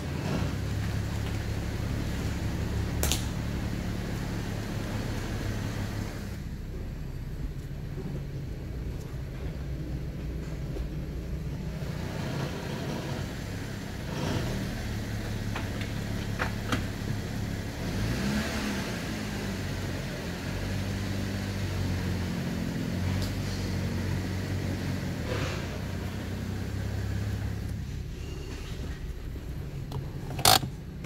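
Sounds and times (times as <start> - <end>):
engine revving: 0.0 - 6.5, 11.4 - 28.0, 29.0 - 31.0
car engine idling: 0.0 - 31.0
sharp clicks: 29.9 - 30.8.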